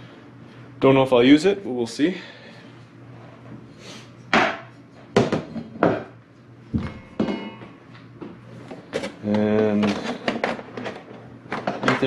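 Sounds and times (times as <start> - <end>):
knocks and clunks of handled parts: 6.8 - 12.0.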